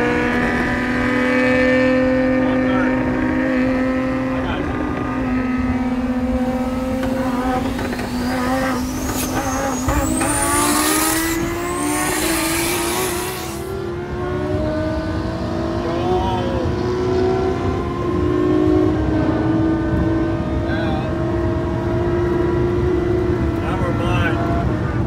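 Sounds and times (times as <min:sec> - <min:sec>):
sports car engine pulling hard: 0:00.0 - 0:25.0
high whine: 0:04.9 - 0:13.8.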